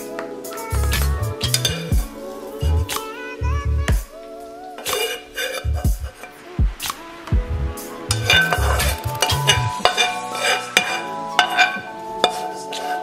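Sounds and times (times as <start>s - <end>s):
background music: 0.0s - 13.0s
metal spatula scraping frying pan: 1.4s - 2.0s, 4.8s - 6.3s, 8.1s - 13.0s.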